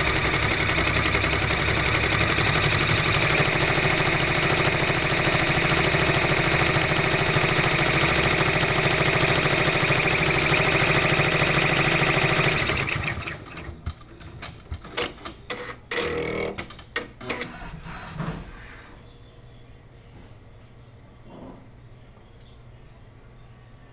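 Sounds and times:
embroidery machine stitching: 0:00.0 - 0:17.7
machine clicks and clunks: 0:13.2 - 0:18.2.

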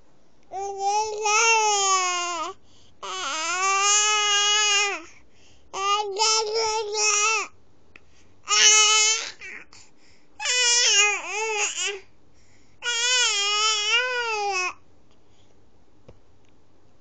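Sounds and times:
baby wailing: 0:01.2 - 0:05.0, 0:08.5 - 0:09.7, 0:10.4 - 0:12.0, 0:12.8 - 0:14.8.

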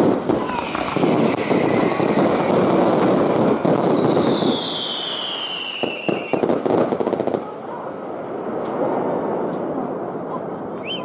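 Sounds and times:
firework sharp cracks: 0:00.0 - 0:07.7
fireworks crackling: 0:00.0 - 0:11.0
falling firework whistle: 0:00.3 - 0:06.6, 0:10.8 - 0:11.0.

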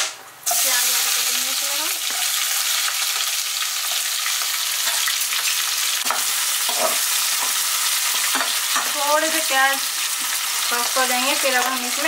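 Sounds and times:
onions sizzling in hot fat: 0:00.4 - 0:12.0
spatula scraping and stirring: 0:04.8 - 0:09.0.

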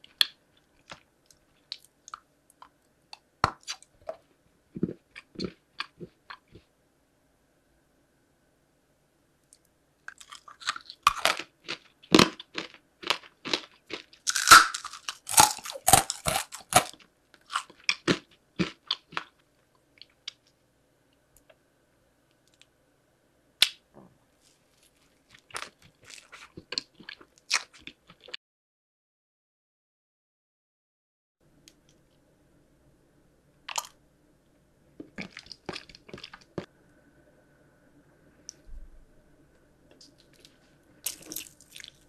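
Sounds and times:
chewing crunchy candy: 0:10.1 - 0:19.4, 0:24.8 - 0:28.4, 0:35.0 - 0:36.7, 0:40.0 - 0:42.0.

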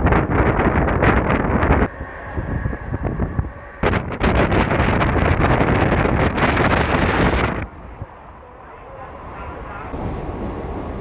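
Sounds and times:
wind buffeting microphone: 0:00.0 - 0:08.4
train running rumble: 0:00.0 - 0:11.0.

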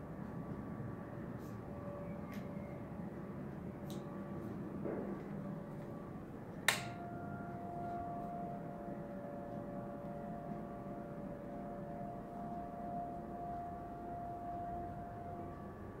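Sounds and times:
faint steady whine: 0:00.0 - 0:16.0
steady low hum: 0:00.0 - 0:16.0
light switch click: 0:06.7 - 0:07.0.

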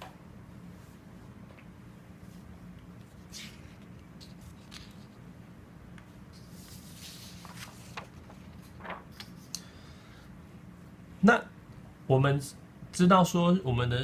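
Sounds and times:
low steady hum: 0:00.0 - 0:14.0
paper rustling: 0:03.0 - 0:05.2, 0:06.3 - 0:09.6.

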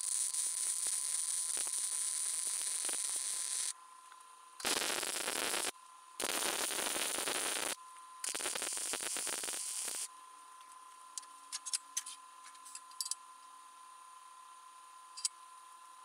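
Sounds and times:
welder arc crackling: 0:00.0 - 0:03.7, 0:04.6 - 0:10.1.

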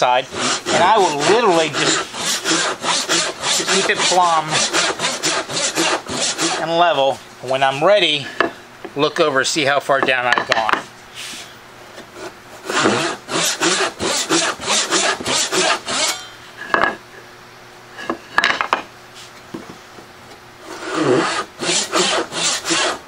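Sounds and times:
hand saw cutting wood: 0:00.0 - 0:07.0, 0:12.2 - 0:16.3, 0:20.6 - 0:23.0.

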